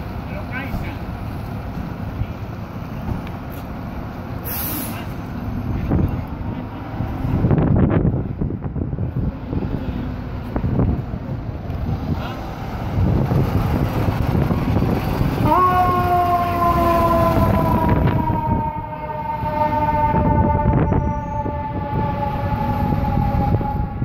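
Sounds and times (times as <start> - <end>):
fire engine diesel rumbling: 0.0 - 24.0
mechanical siren wailing: 14.7 - 24.0.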